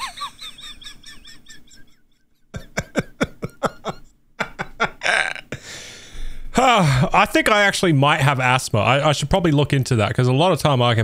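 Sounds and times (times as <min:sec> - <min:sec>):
wheezing high-pitched laughter: 0:00.0 - 0:03.2.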